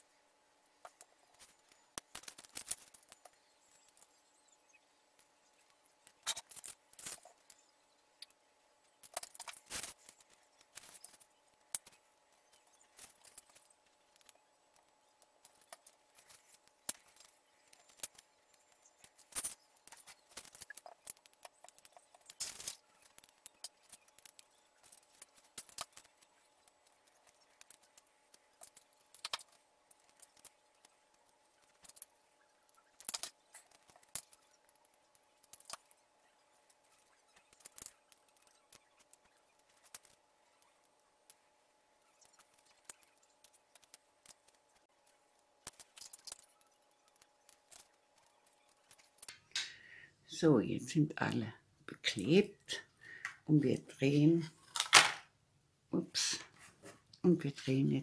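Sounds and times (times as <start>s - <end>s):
paper tubes clicking and tapping: 0.8s - 4.2s, 9.0s - 36.0s, 36.6s - 41.5s.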